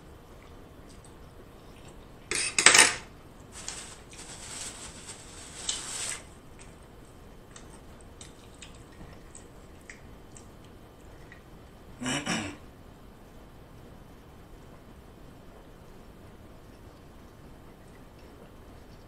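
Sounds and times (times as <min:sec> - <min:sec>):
close-up chewing: 0:07.4 - 0:11.5.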